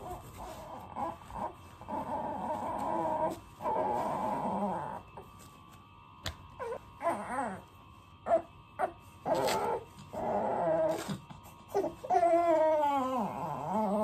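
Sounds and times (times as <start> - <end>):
infant whiny crying: 6.6 - 7.7, 9.3 - 14.0
infant squeaky whimpers: 11.7 - 14.0.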